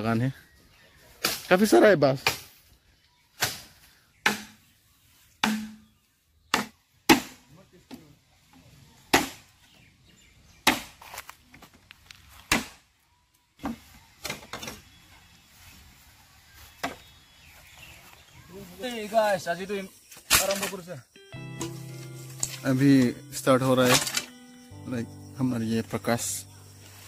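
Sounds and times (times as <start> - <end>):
machete chopping bamboo: 1.2 - 1.5, 2.2 - 2.6, 3.4 - 4.7, 5.4 - 5.9, 6.5 - 7.4, 9.1 - 9.6, 10.6 - 11.2, 12.4 - 12.9.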